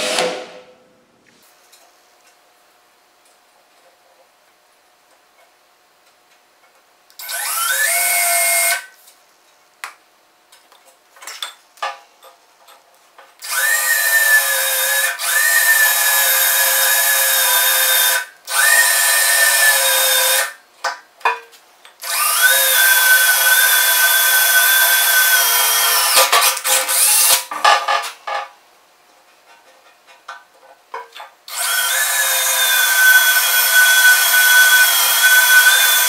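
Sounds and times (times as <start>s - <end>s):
cordless drill whining: 7.2s - 8.8s, 13.4s - 20.5s, 22.0s - 27.4s, 31.5s - 36.0s.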